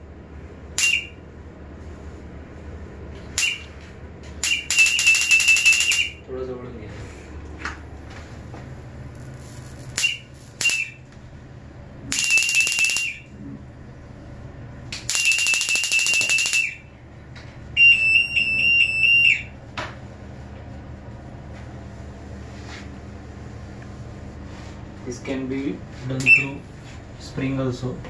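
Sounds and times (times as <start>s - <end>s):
high-pitched electronic alarm: 4.4s - 6.2s, 12.1s - 13.3s, 15.1s - 16.9s, 17.8s - 19.6s
high voltage arcing crackle: 8.3s - 11.2s.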